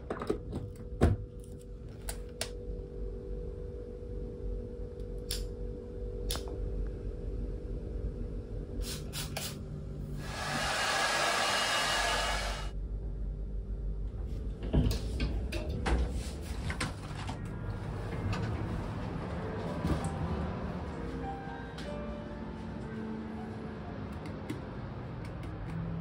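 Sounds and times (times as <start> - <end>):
hair dryer blowing: 10.2 - 12.7.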